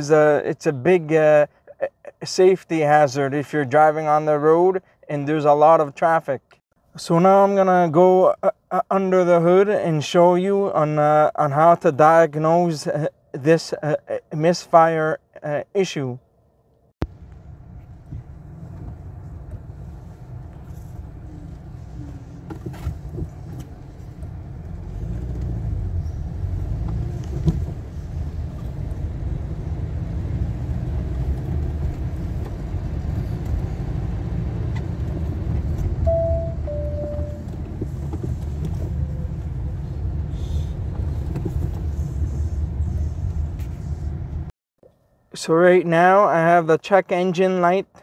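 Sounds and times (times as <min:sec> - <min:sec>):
road rumble: 0:15.2 - 0:44.5.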